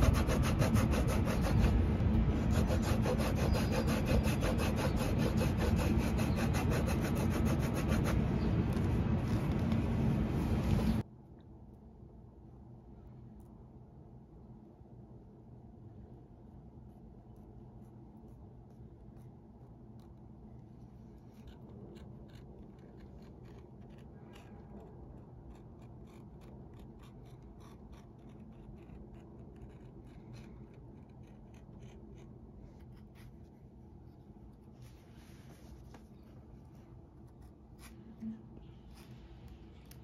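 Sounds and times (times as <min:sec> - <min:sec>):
knife cutting and scraping leather: 0:02.4 - 0:09.6.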